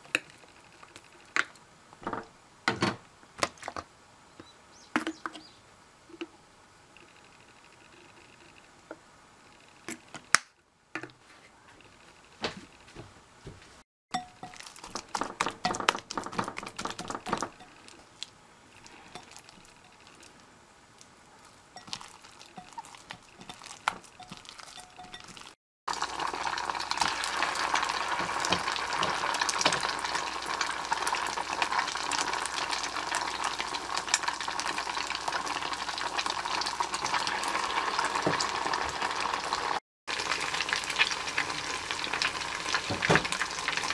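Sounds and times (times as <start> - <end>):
hot oil sizzling: 14.2 - 43.9
fish paste kneaded by hand: 14.4 - 18.2.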